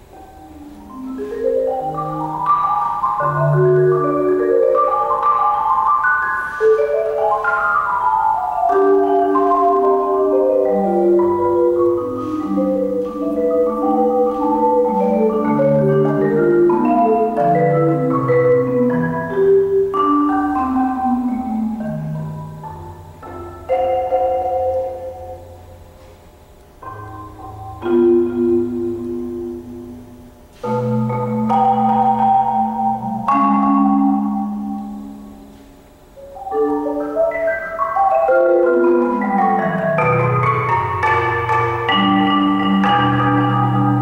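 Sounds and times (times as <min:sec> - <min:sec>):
marimba played with mallets: 0:00.0 - 0:26.2, 0:26.8 - 0:44.0.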